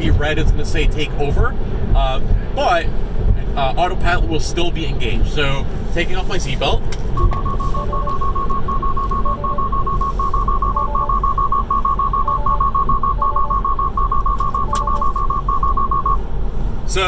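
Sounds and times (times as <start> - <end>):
cabin road noise: 0.0 - 17.0
rapid high alert beeping: 7.2 - 16.2.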